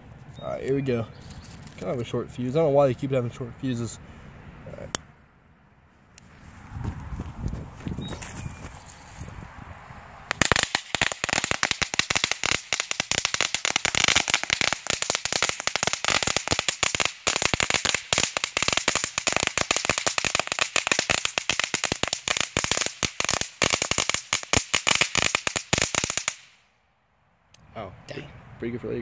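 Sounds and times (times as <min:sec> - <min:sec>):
firecrackers crackling: 0:10.3 - 0:26.6.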